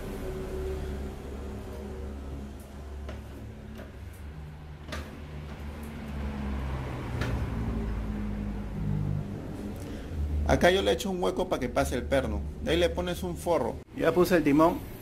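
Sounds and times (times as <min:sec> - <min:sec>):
low hum: 0:00.0 - 0:10.6.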